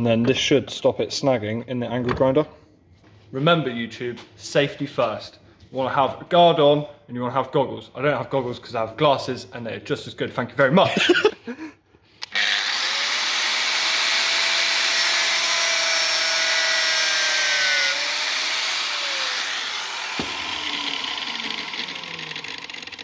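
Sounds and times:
angle grinder cutting rubber hose: 12.2s - 23.0s
angle grinder spinning down: 12.2s - 23.0s.

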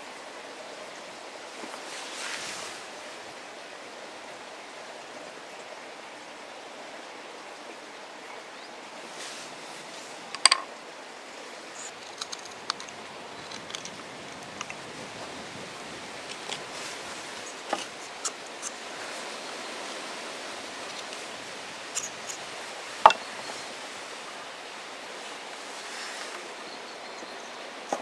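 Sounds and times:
soft rustles: 1.6s - 3.0s, 9.0s - 10.3s, 11.7s - 24.2s, 25.1s - 26.5s
steady hissing: 9.1s - 26.8s.

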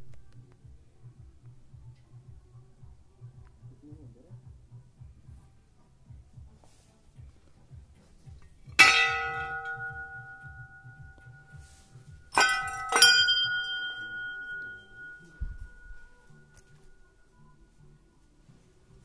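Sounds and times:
brass bell ringing: 8.8s - 17.4s.

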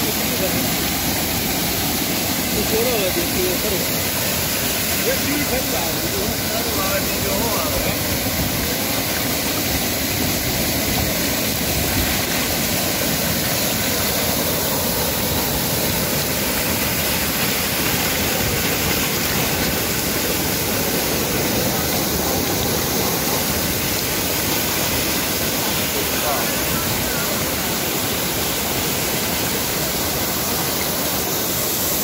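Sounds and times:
waterfall rushing: 0.0s - 32.0s.

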